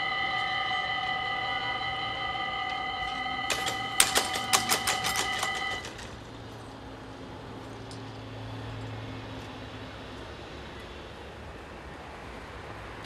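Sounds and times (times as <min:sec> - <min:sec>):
level crossing warning bell: 0:00.0 - 0:06.6
low hum of traffic: 0:00.0 - 0:13.0
barrier arms clattering: 0:03.4 - 0:06.3.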